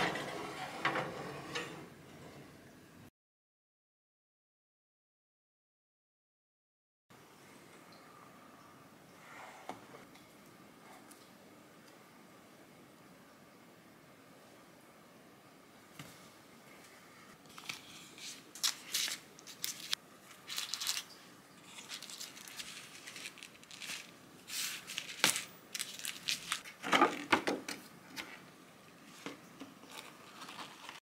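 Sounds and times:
paper and plastic crinkling: 17.4 - 28.4, 29.1 - 31.0.

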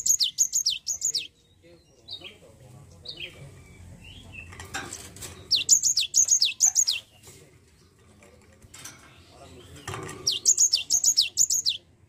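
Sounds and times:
bird singing high whistled notes: 0.0 - 1.4, 10.3 - 11.8.

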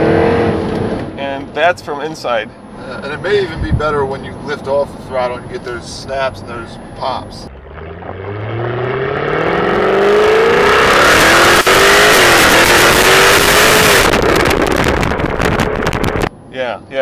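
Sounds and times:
car engine accelerating hard: 7.4 - 16.3
exhaust crack on upshift: 7.5 - 16.3
exhaust snaps and pops: 11.1 - 16.3.

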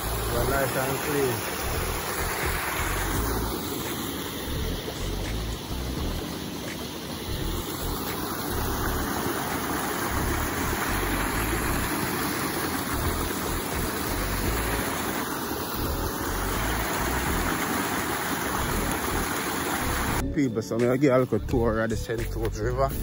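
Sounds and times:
low rumbling: 1.6 - 3.6
river rushing over rocks: 6.2 - 20.2.

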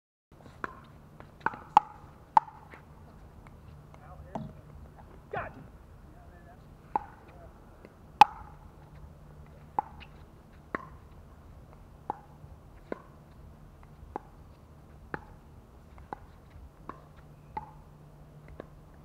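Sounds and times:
paddles striking pickleball: 0.6 - 4.6, 6.9 - 8.6.

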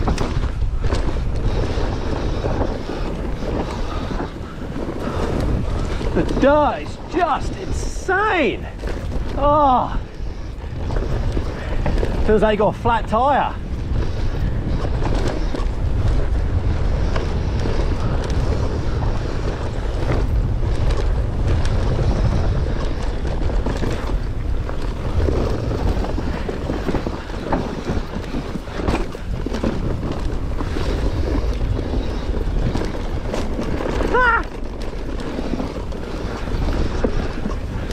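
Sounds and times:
bike tyres on dirt: 0.0 - 37.9
wind rumble on microphone: 0.0 - 37.9
bike knocking on rocks: 8.6 - 37.9.

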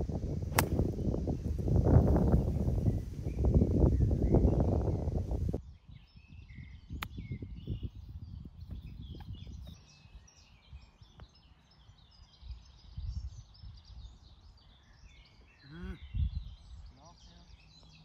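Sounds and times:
wind rumble on microphone: 0.0 - 11.4, 12.0 - 15.2, 15.9 - 17.0
small birds chirping: 0.1 - 18.0
golf club striking ball: 0.5 - 1.0.

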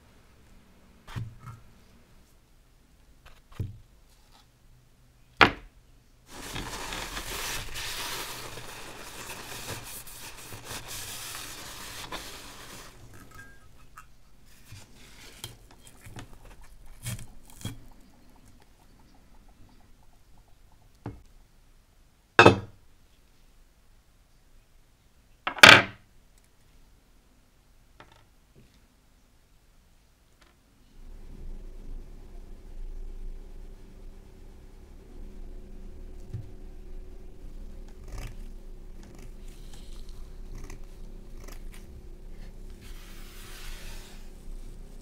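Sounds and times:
rough hissing noise: 6.2 - 15.7, 39.2 - 45.0.

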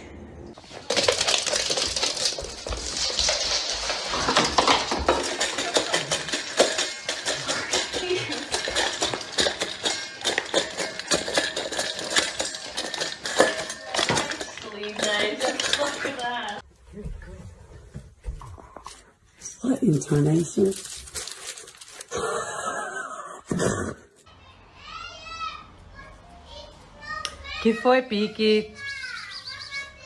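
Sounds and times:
metal bowl clinking: 0.6 - 16.6.

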